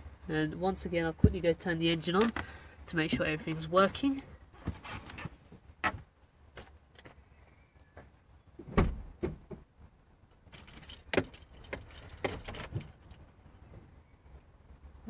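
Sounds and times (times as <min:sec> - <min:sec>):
car door thud: 0:08.7 - 0:09.4
keys jangling: 0:10.5 - 0:13.2.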